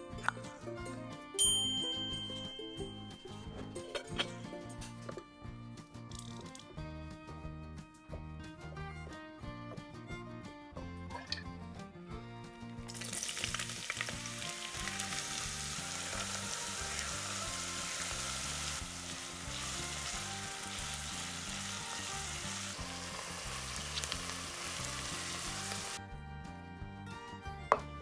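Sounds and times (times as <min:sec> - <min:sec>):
onion sizzling in oil: 0:12.9 - 0:26.0.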